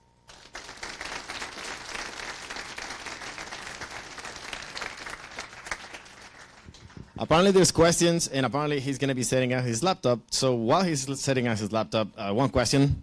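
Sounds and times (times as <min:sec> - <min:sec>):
audience applauding: 0:00.3 - 0:07.2.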